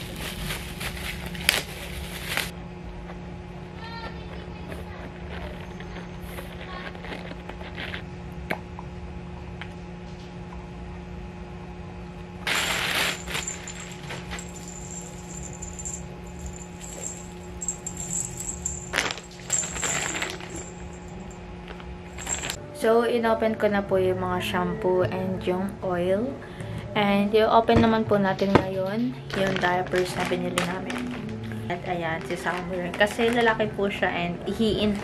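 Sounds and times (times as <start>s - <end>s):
plastic packaging rustling: 0.0s - 2.5s, 12.5s - 21.3s, 22.1s - 22.6s, 29.3s - 33.6s
steady low hum: 0.0s - 35.0s.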